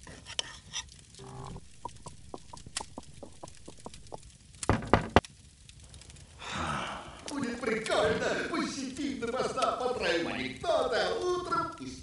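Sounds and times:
loud knocks: 0:03.7 - 0:05.3.

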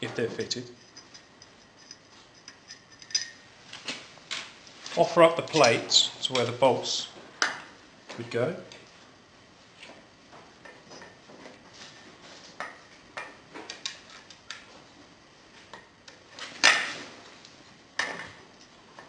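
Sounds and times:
metal clicks and clinks: 0:00.8 - 0:03.4.

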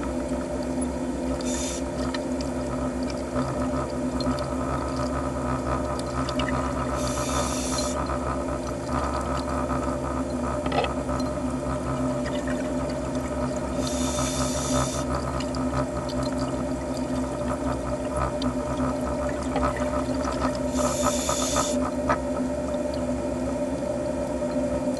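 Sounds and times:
steady underwater hum: 0:00.0 - 0:24.9
scuba regulator hissing: 0:13.8 - 0:15.0, 0:20.8 - 0:21.8.

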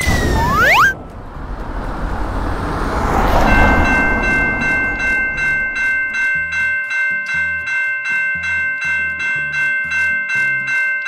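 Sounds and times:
broad rushing noise: 0:00.0 - 0:06.4
railroad crossing bell ringing: 0:03.0 - 0:11.0.

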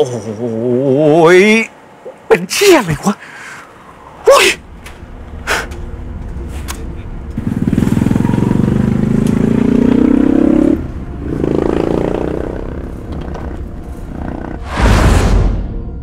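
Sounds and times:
vehicle engine accelerating: 0:07.2 - 0:14.8.

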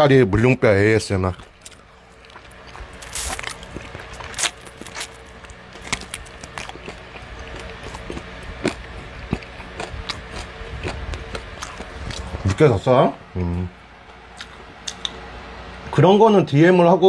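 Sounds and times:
chewing crunchy chicken cartilage: 0:01.3 - 0:12.7, 0:14.2 - 0:15.2.

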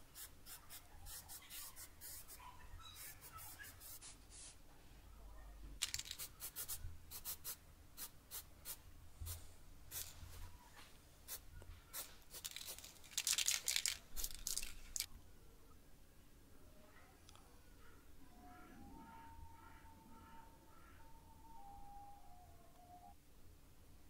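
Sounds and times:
spray paint can hissing: 0:12.0 - 0:14.7.

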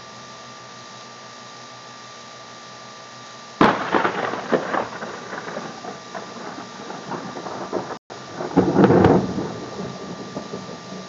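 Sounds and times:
steady hiss: 0:00.0 - 0:11.0
rolling thunder: 0:03.6 - 0:11.0
thunder crack: 0:03.6 - 0:11.0.

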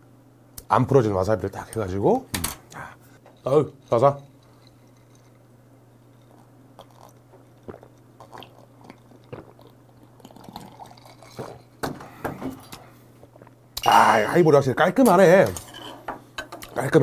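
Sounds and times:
steady low hum: 0:00.0 - 0:17.0
swallowing gulps: 0:06.4 - 0:11.6.

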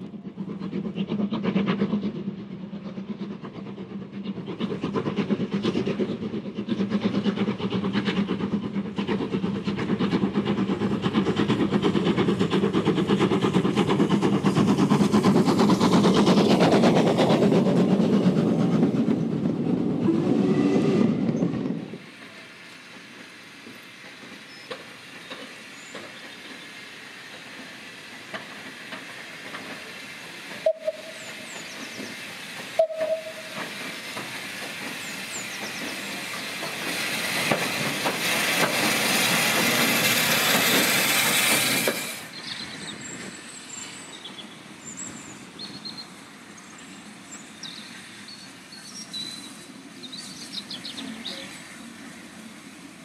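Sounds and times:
steam hissing: 0:00.0 - 0:53.0.

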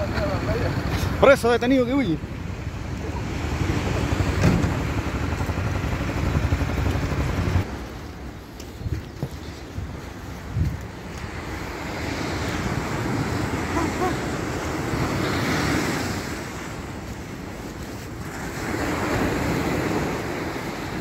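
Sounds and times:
ocean surf breaking on sand: 0:00.0 - 0:08.3, 0:09.4 - 0:21.0
wind buffeting microphone: 0:02.2 - 0:21.0.

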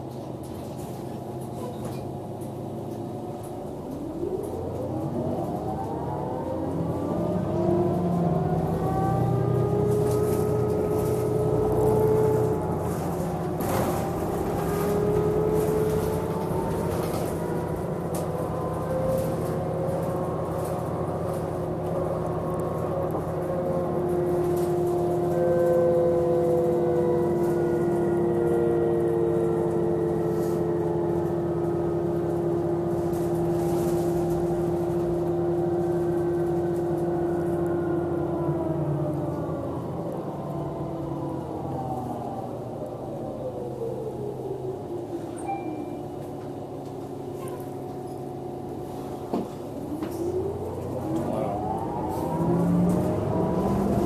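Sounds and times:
diesel bus engine hum: 0:00.0 - 0:54.0.

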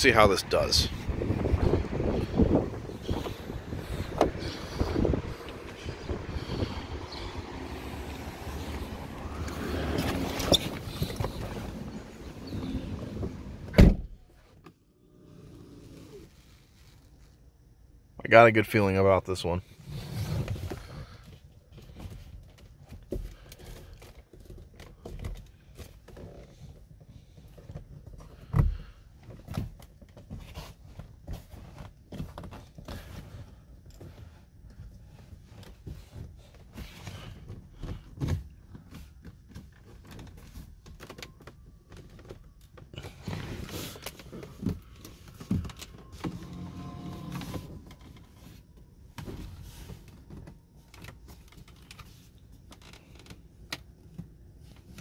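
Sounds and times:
small electric motor whine: 0:46.2 - 0:47.8.

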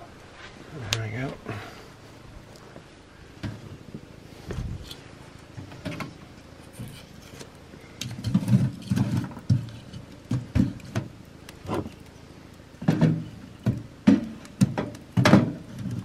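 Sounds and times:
firewood thumping in stove: 0:08.0 - 0:12.1, 0:12.8 - 0:16.0.

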